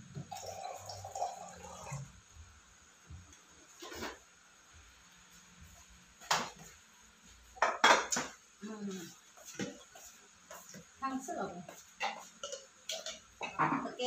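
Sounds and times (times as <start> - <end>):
tableware clinking: 7.6 - 8.4, 12.0 - 13.9.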